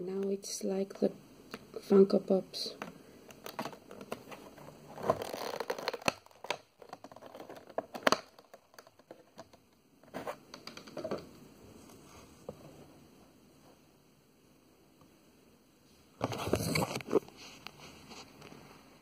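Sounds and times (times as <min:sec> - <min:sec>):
plastic packaging crinkling: 0:03.3 - 0:10.9.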